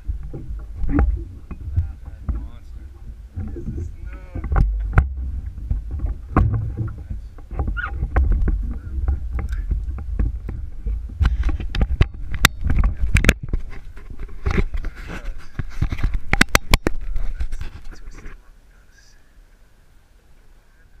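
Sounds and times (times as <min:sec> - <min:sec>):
sharp knocks and splashes: 0:00.0 - 0:14.8
water lapping against boat: 0:00.0 - 0:15.2
wind rumble on microphone: 0:00.0 - 0:18.5.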